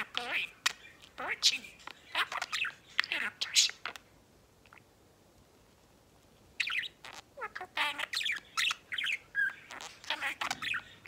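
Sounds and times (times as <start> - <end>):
budgerigar chirping and warbling: 0.0 - 4.0, 6.6 - 11.0.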